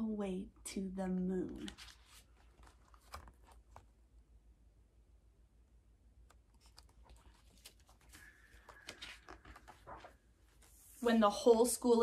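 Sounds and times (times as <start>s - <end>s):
book handling clicks: 1.6s - 3.9s.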